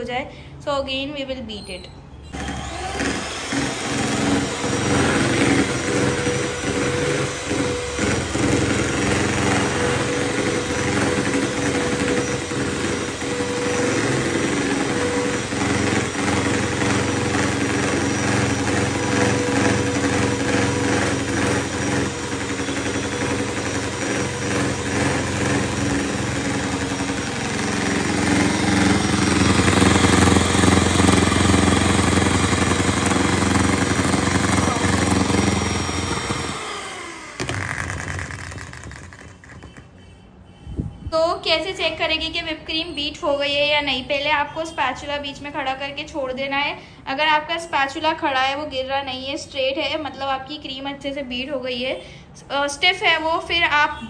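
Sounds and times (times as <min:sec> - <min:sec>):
electric hand mixer whipping cream: 0:02.4 - 0:39.9.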